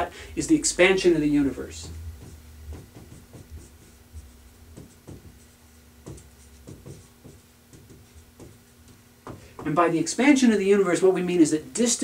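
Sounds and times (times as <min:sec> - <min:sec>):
marker writing on whiteboard: 0:01.0 - 0:09.9.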